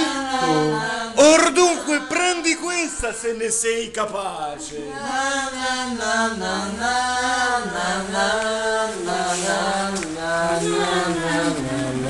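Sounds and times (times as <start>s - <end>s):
person chanting long notes: 0.3s - 1.1s.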